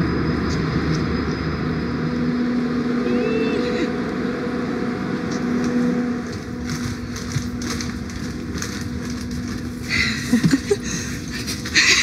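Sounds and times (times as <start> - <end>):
steady low hum: 0.0 - 12.0
footsteps: 5.3 - 10.6
backpacks rustling: 6.2 - 12.0.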